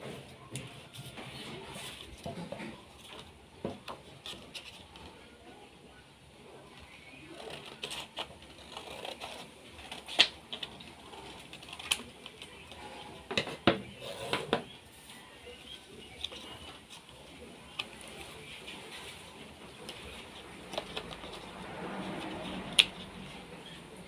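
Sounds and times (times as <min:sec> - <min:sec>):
paper rustling: 0:06.9 - 0:13.4, 0:15.9 - 0:23.7
scissors snipping paper: 0:07.0 - 0:12.9, 0:16.0 - 0:23.2.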